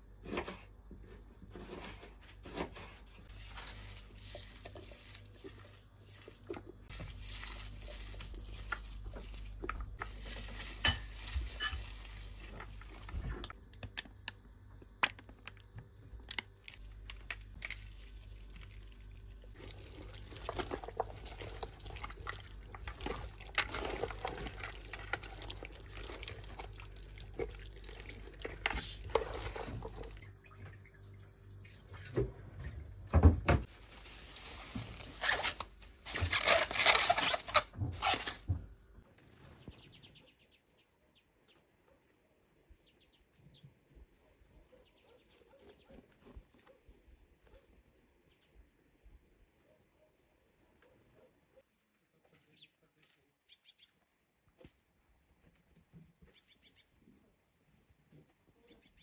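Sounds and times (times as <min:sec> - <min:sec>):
water pouring and splashing: 0:19.5 - 0:32.7.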